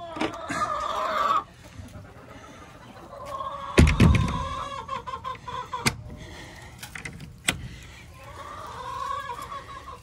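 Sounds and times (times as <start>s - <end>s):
hens clucking: 0.0s - 10.0s.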